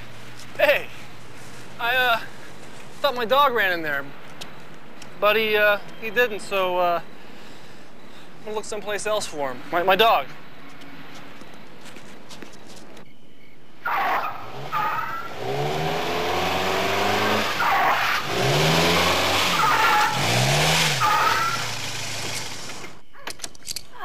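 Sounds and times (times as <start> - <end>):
tyres squealing and skidding: 13.8 - 23.0
car engine revving: 13.9 - 23.0.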